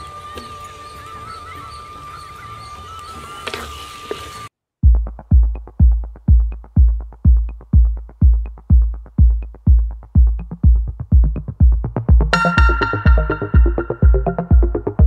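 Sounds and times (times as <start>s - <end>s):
drum machine beat: 4.8s - 15.0s.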